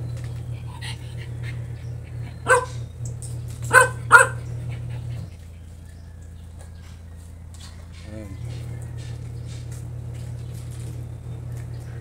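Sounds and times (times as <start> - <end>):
steady low hum: 0.0 - 12.0
dog barking: 2.3 - 2.9, 3.6 - 5.3.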